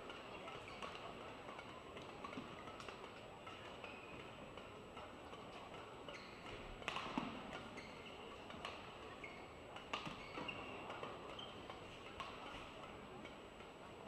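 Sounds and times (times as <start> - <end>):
racket hitting shuttlecock: 6.8 - 7.7, 12.0 - 12.7
shoes squeaking on court: 7.7 - 8.2, 9.1 - 11.8.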